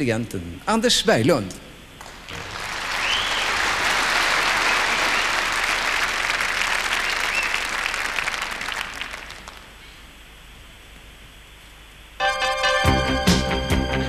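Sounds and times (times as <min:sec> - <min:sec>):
audience applauding: 0:02.0 - 0:09.8.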